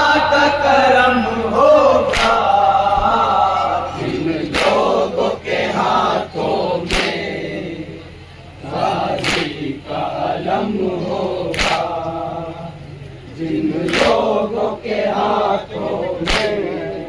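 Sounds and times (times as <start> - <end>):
men chanting in unison: 0.0 - 17.0
collective chest slaps: 2.1 - 2.4, 4.5 - 4.9, 6.8 - 7.3, 9.2 - 9.6, 11.5 - 11.9, 16.3 - 16.6.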